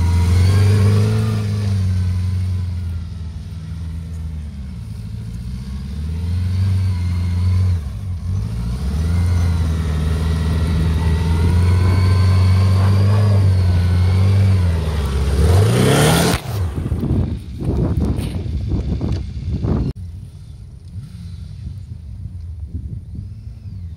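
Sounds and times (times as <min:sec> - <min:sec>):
quad rushing past: 0:00.0 - 0:17.6
quad engine revving: 0:00.0 - 0:19.9.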